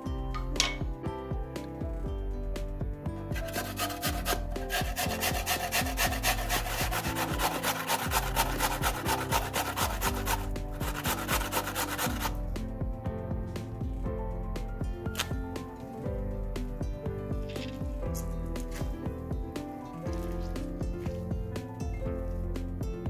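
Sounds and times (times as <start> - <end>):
potato grated on metal grater: 3.4 - 12.4.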